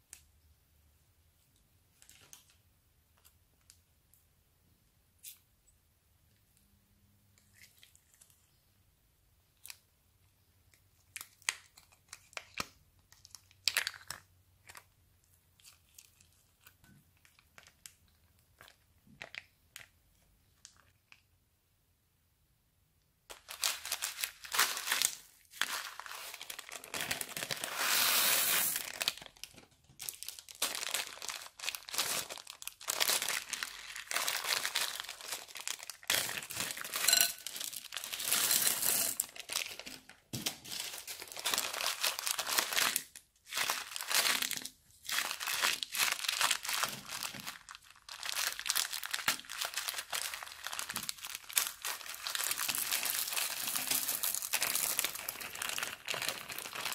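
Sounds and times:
plastic bags crinkling: 23.3 - 56.9.

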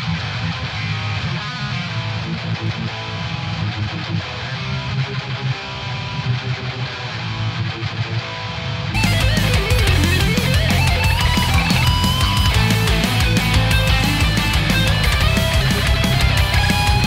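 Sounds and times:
electric guitar riff: 0.0 - 17.0
drums: 8.9 - 17.0
full band playing: 9.0 - 17.0.

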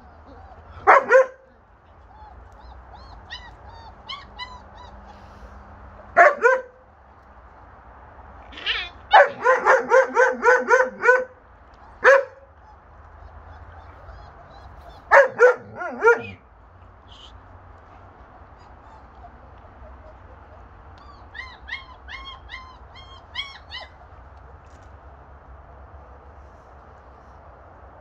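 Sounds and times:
puppy whimpers: 0.0 - 0.8, 1.8 - 5.2, 13.2 - 15.1, 18.6 - 24.0
dogs barking: 0.4 - 1.6, 6.1 - 6.8, 9.1 - 16.5.

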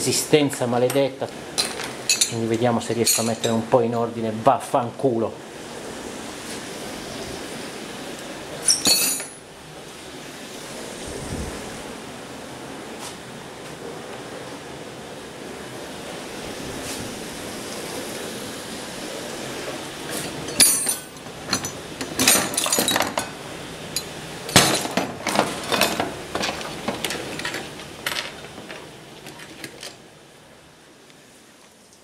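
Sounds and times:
tools clinking on table: 1.6 - 2.4, 3.0 - 3.6, 8.6 - 9.4, 20.4 - 23.4.

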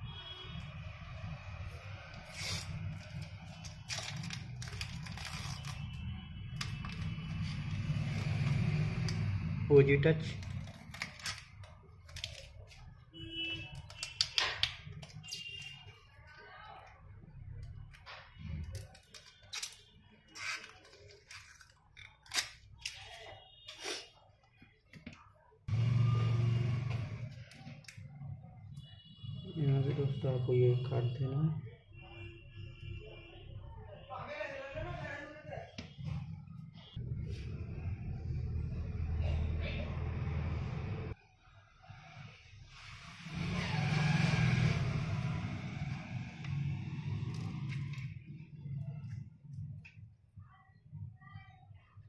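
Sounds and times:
plastic film crinkling: 2.3 - 8.2, 10.3 - 12.9.

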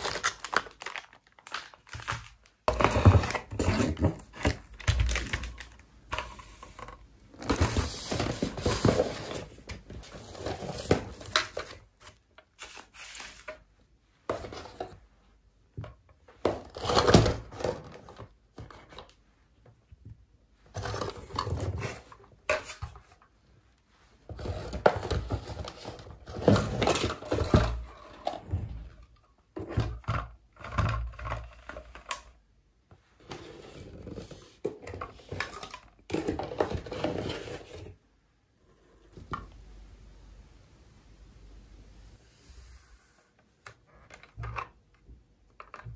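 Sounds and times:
plastic wrap crinkling: 0.0 - 5.8
cardboard scraping: 6.4 - 13.6.

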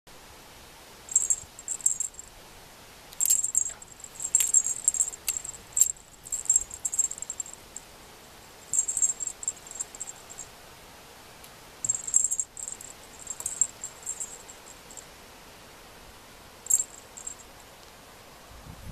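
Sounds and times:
cat toy metal jingle tinkling: 1.1 - 2.3, 3.2 - 7.8, 8.6 - 10.5, 11.8 - 15.0, 16.6 - 17.7.

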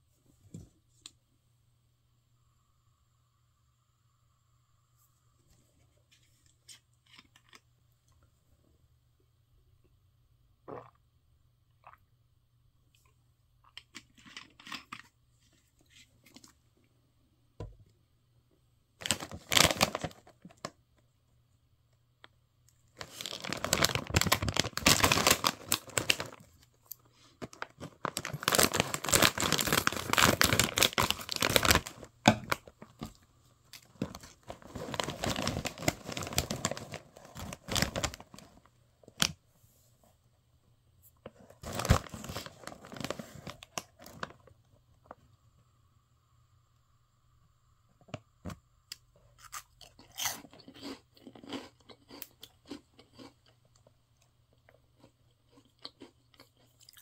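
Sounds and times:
hand rustling snacks in bag: 19.0 - 20.4, 23.0 - 32.1, 33.9 - 38.7, 41.6 - 44.3
plastic snack bag crinkling: 19.0 - 20.8, 22.8 - 39.3, 41.4 - 44.5.

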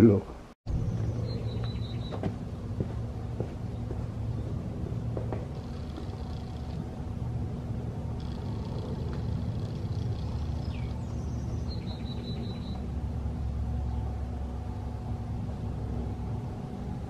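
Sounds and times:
faint high chirping: 0.8 - 2.2, 8.2 - 12.9
electric tyre inflator humming: 2.1 - 17.0.

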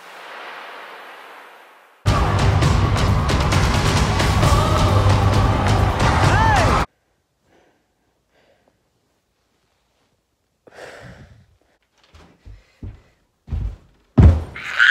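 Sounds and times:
person sighing heavily: 10.7 - 11.6
feet thumping on floor: 12.1 - 14.6.

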